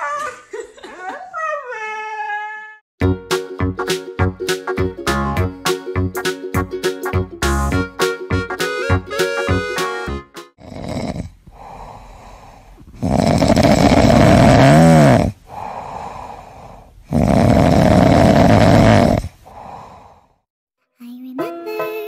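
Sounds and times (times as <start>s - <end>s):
cat snoring: 10.6s - 19.9s
cat breathing: 11.5s - 14.2s, 15.4s - 17.1s, 19.2s - 20.4s.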